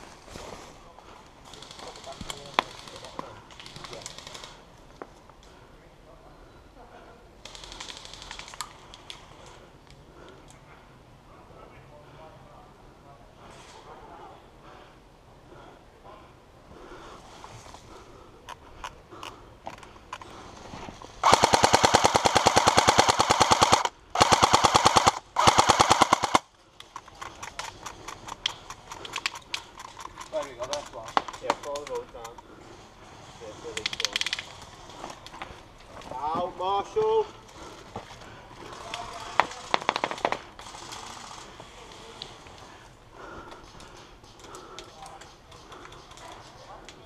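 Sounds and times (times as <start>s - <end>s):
airsoft gun firing bursts: 21.2s - 26.5s, 39.3s - 41.4s
faint clicks: 26.7s - 32.5s.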